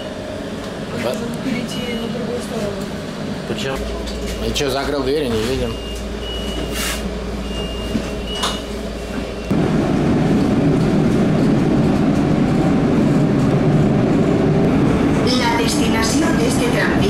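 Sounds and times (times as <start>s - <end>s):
train running rumble: 0.0s - 17.0s
low hum: 7.1s - 17.0s.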